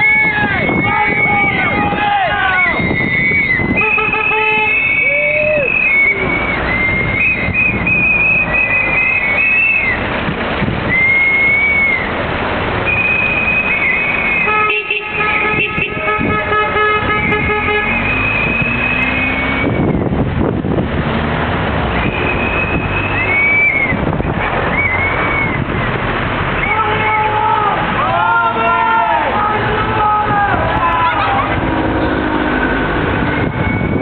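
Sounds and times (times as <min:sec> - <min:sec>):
horns tooting: 0:00.0 - 0:10.1, 0:10.9 - 0:20.2, 0:21.8 - 0:25.8, 0:26.4 - 0:34.0
whistles tooting: 0:00.0 - 0:10.1, 0:10.9 - 0:12.2, 0:12.8 - 0:15.6, 0:17.0 - 0:20.1, 0:22.0 - 0:25.7, 0:33.3 - 0:34.0
crowd noise: 0:00.0 - 0:20.1, 0:21.2 - 0:34.0
traffic noise: 0:00.0 - 0:34.0.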